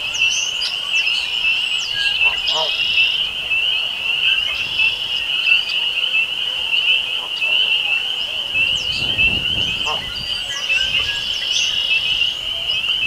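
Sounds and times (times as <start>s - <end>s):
blackbirds calling: 0.0s - 13.0s
frogs peeping chorus: 0.0s - 13.0s.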